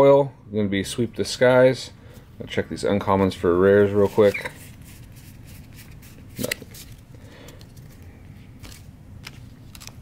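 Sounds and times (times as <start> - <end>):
trading cards flipped by hand: 4.0 - 10.0.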